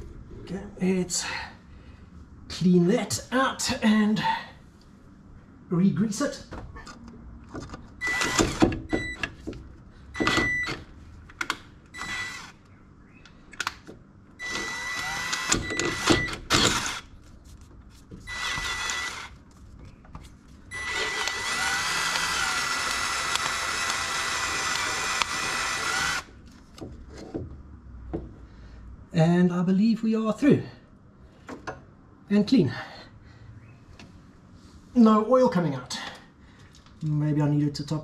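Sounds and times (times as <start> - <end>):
drill whining cutting metal: 8.0 - 8.7, 12.0 - 12.6, 14.4 - 17.0, 18.3 - 19.3, 20.7 - 26.3.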